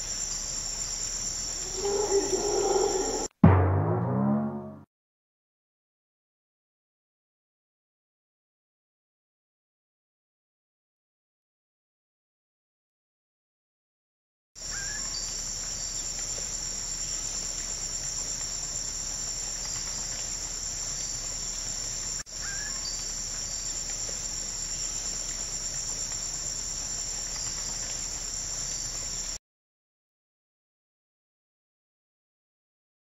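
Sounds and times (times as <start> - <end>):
crickets and insects trilling: 0.0 - 3.3, 14.6 - 29.4.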